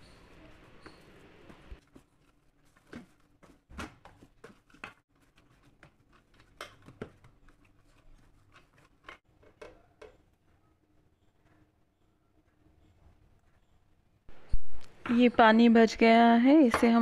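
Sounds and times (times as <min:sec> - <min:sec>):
hands kneading dough: 0:00.0 - 0:10.4.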